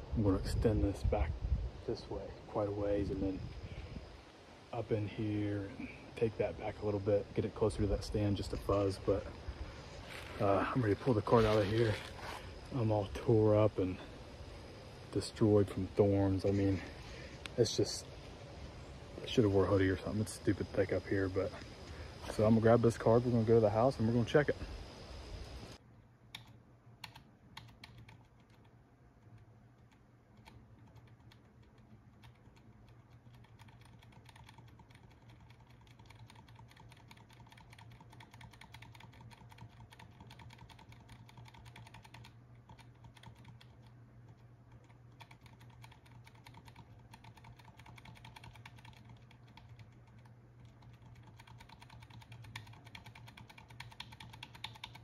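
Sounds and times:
low steady hum: 0.0s - 55.0s
computer keys clicking: 26.3s - 28.7s, 29.3s - 55.0s.

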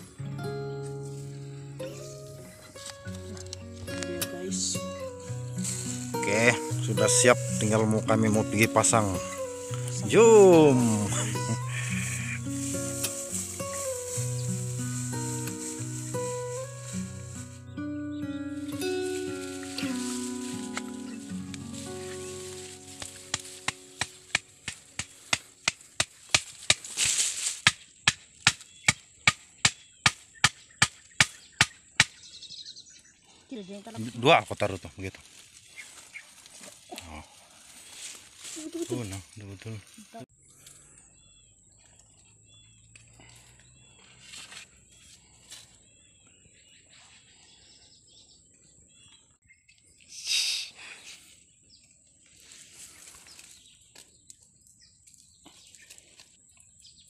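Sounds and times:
small birds chirping: 1.2s - 27.2s, 27.9s - 57.0s
machete chopping wood: 23.0s - 32.2s.

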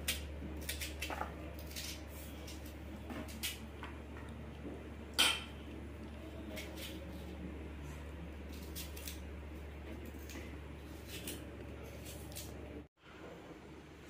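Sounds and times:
knife cutting an onion: 0.0s - 3.6s, 8.4s - 9.3s, 9.9s - 12.6s
steady low hum: 0.0s - 14.0s.

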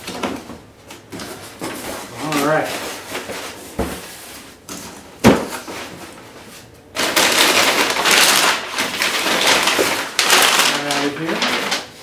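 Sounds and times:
packing paper crinkling: 1.2s - 3.6s, 7.0s - 12.0s.

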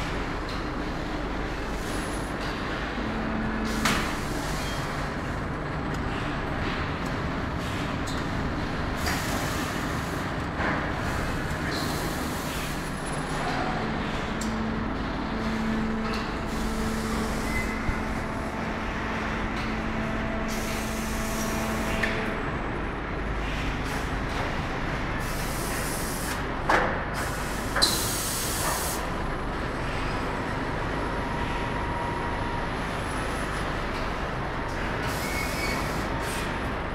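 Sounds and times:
machine hum: 0.0s - 26.6s.

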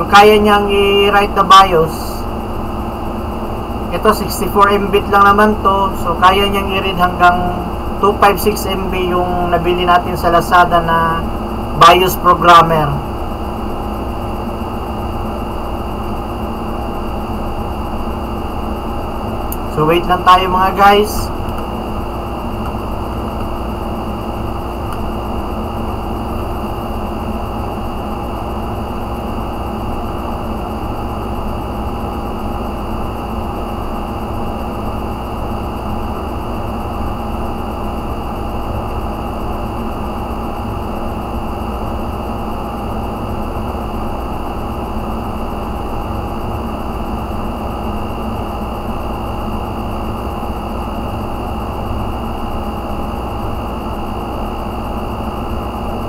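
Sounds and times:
faint constant hum: 0.0s - 56.0s
fan whir: 0.0s - 56.0s.

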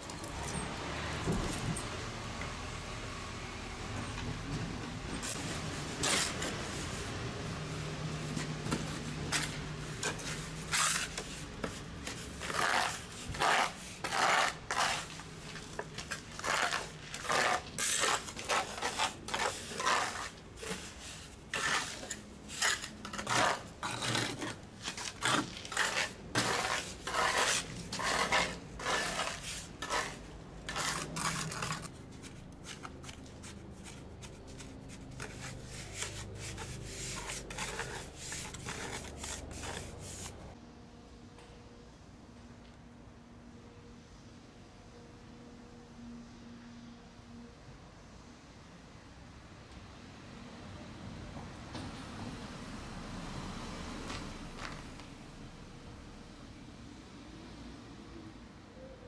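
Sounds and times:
trowel scraping wet mortar: 9.3s - 40.5s.

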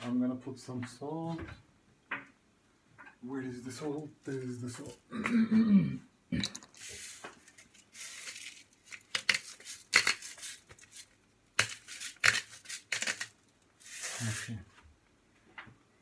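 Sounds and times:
salt grinder crunching: 7.9s - 14.5s.

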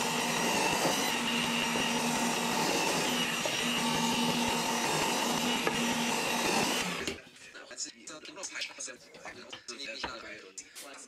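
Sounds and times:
drill bit boring plywood: 0.0s - 7.2s
drill press whining: 0.0s - 7.2s.

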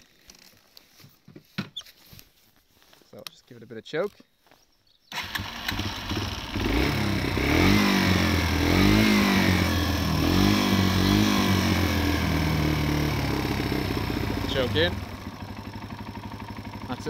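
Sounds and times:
motorcycle engine revving: 5.1s - 17.0s.

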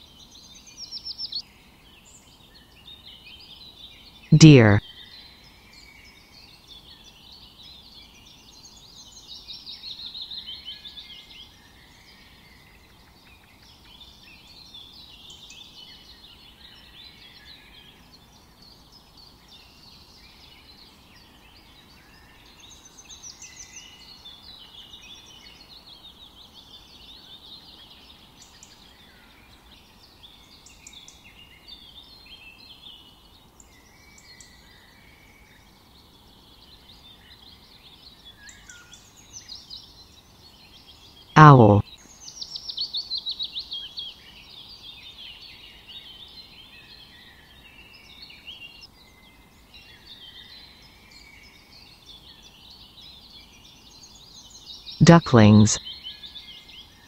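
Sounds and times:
songbirds singing: 42.1s - 55.0s.

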